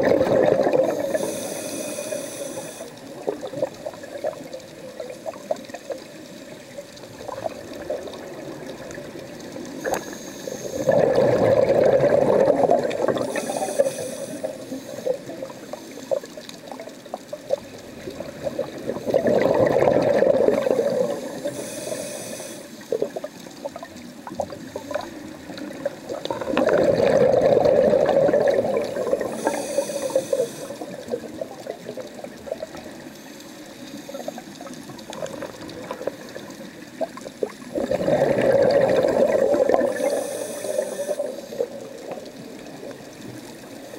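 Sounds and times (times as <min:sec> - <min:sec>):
underwater air bubbling: 0:00.0 - 0:43.9
short high hiss: 0:01.1 - 0:03.0, 0:13.3 - 0:15.1, 0:29.3 - 0:30.8
faint clicks: 0:02.1 - 0:10.7, 0:12.9 - 0:19.0, 0:29.0 - 0:37.7.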